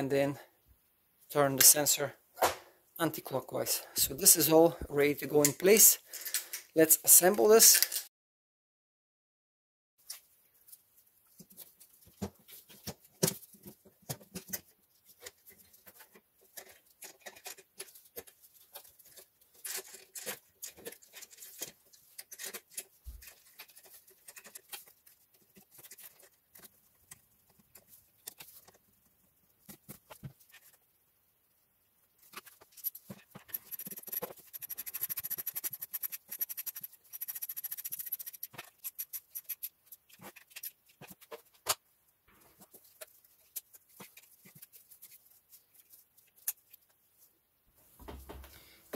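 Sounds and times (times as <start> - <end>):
plastic parts clicking and knocking: 11.5 - 28.8, 32.2 - 41.8.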